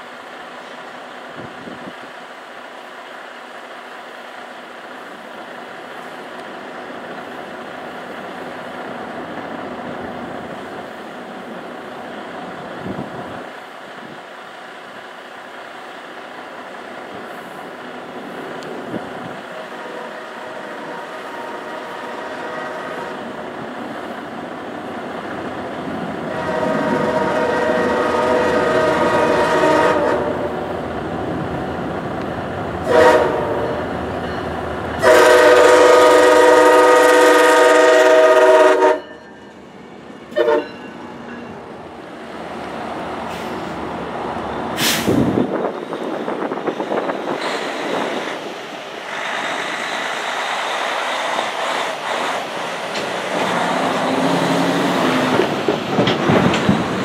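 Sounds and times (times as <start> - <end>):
diesel locomotive engine: 0.0 - 57.0
train wheels on rails: 0.0 - 57.0
locomotive horn blasts: 19.7 - 23.3, 26.3 - 30.6, 32.8 - 33.9, 35.0 - 39.2, 40.3 - 40.9.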